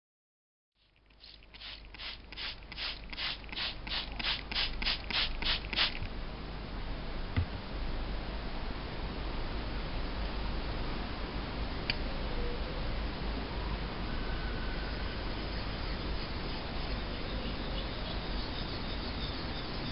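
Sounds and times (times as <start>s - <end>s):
spray bottle squirting water: 0.8s - 6.1s
steady hiss: 0.8s - 6.8s.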